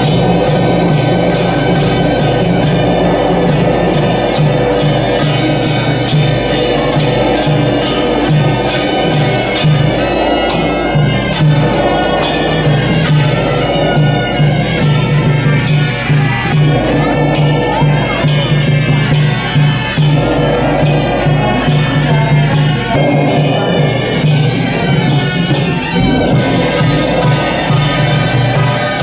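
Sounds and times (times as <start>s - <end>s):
hand cymbals clashing: 0.0s - 29.0s
reedy wind melody: 0.0s - 29.0s.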